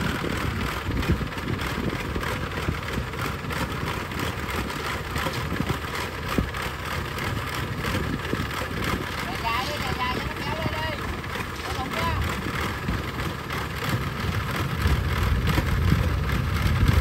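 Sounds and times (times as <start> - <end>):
harvester engine drone: 0.0 - 17.0.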